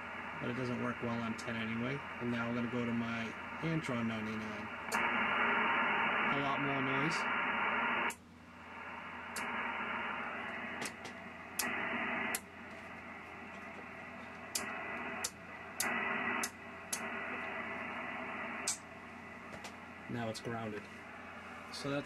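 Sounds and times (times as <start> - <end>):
radio static: 0.0 - 22.0
antenna switch clicks: 14.5 - 17.1, 18.6 - 18.8.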